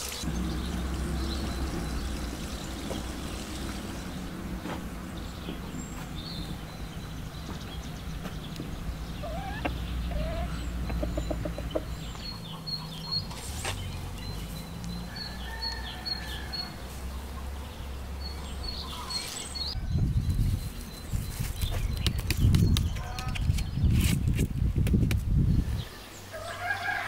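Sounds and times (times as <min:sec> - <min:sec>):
small birds chirping: 0:00.0 - 0:24.4
steady low rumble: 0:00.3 - 0:13.0
chickens clucking: 0:08.2 - 0:13.5.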